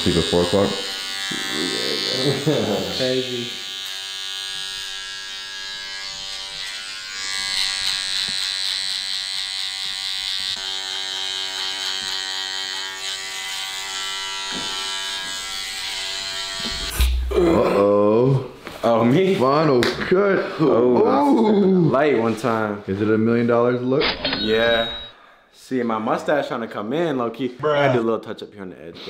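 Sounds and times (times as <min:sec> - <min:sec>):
electric hair trimmer buzzing: 0:00.0 - 0:17.3.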